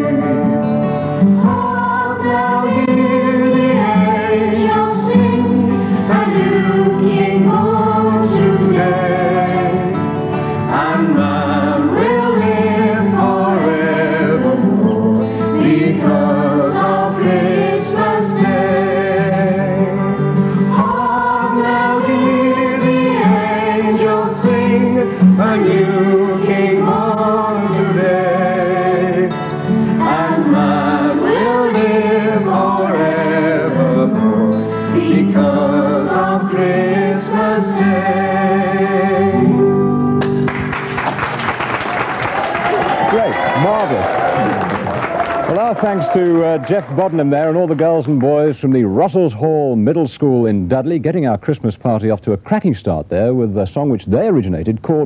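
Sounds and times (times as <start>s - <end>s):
children's choir singing: 0.0s - 40.2s
strummed acoustic guitar: 0.0s - 41.4s.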